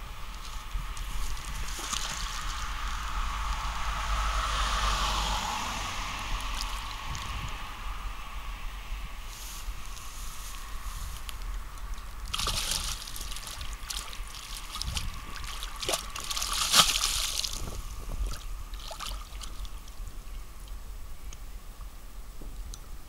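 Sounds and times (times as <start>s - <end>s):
fish splashing in water: 0.2s - 7.7s, 11.8s - 20.0s
water dripping: 6.3s - 7.6s, 11.2s - 20.0s.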